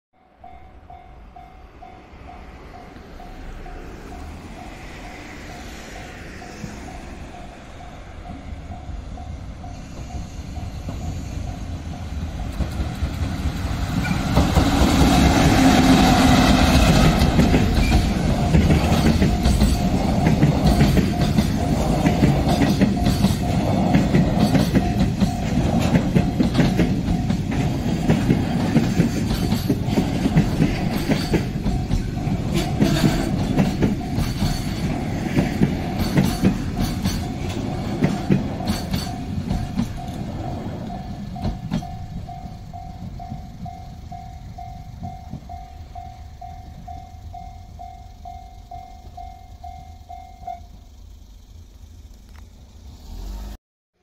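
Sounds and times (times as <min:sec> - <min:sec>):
train wheels clacking over rail joints: 0:09.9 - 0:46.1.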